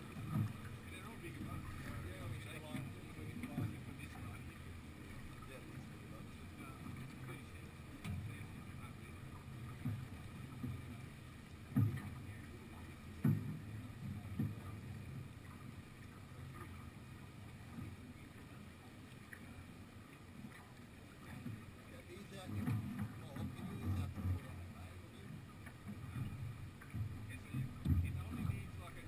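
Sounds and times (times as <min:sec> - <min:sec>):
water rushing along boat hull: 0:00.0 - 0:29.0.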